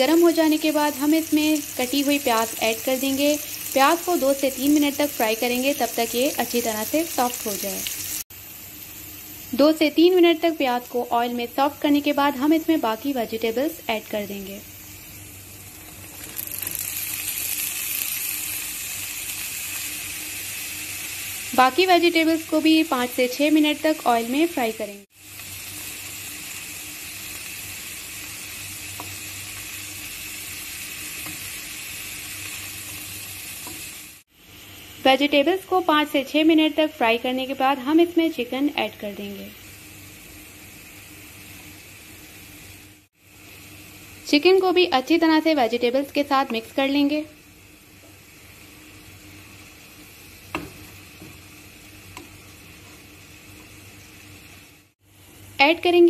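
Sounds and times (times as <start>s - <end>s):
vegetables sizzling in oil: 0.0s - 56.0s
spatula tapping pan: 50.5s - 51.4s.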